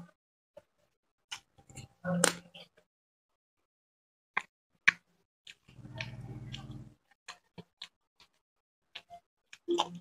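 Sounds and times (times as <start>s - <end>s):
low chewing: 4.9s - 10.0s.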